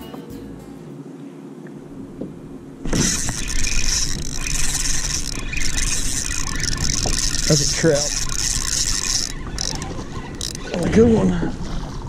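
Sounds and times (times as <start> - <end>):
wind noise on microphone: 1.8 - 12.0
fish splashing water: 2.8 - 10.9.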